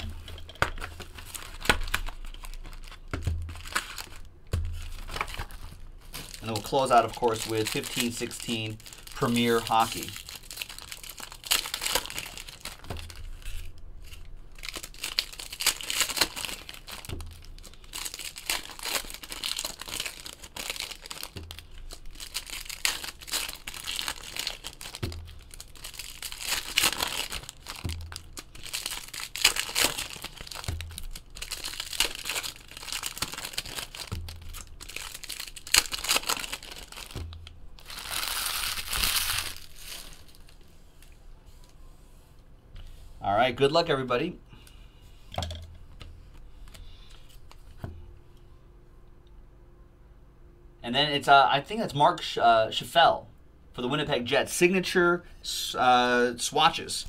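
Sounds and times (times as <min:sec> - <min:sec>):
foil wrappers tearing and crinkling: 0:00.0 - 0:40.6.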